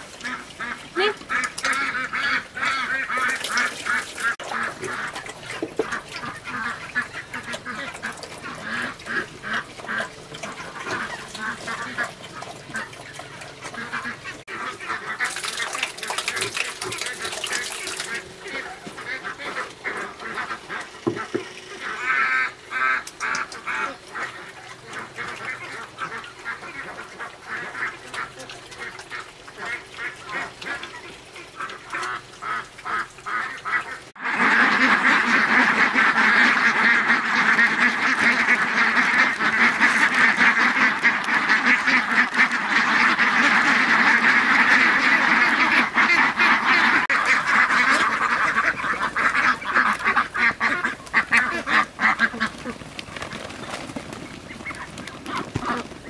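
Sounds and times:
pigs chomping: 0.0 - 21.6, 34.7 - 56.0.

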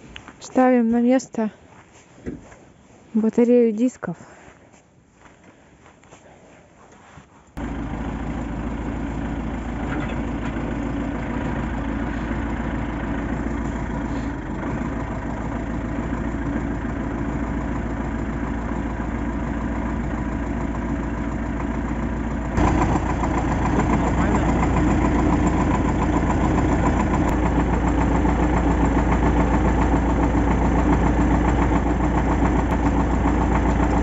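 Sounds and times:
tractor diesel engine idling: 7.6 - 34.0.

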